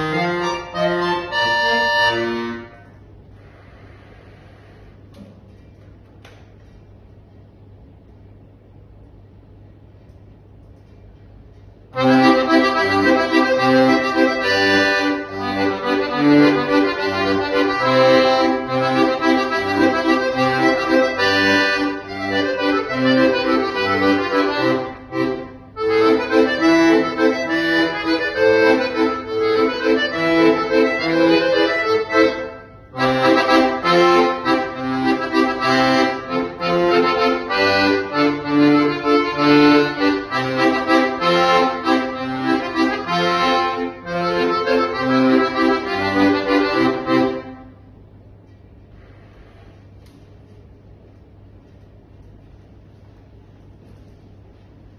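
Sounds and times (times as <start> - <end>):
button accordion playing solo: 0.0 - 2.9, 12.0 - 47.8.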